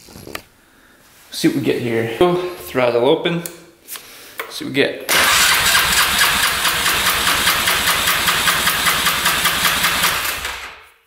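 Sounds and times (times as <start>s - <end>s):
engine cranking over: 5.1s - 10.8s.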